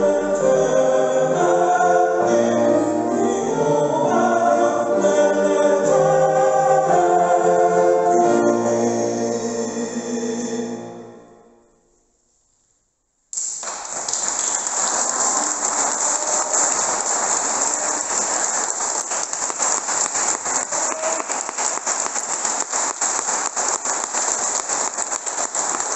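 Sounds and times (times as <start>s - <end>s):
audience applause: 13.4s - 25.9s.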